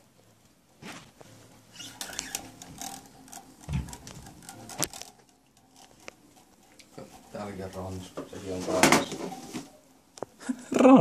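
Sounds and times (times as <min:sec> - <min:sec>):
small objects clicking and knocking: 0:01.8 - 0:09.4.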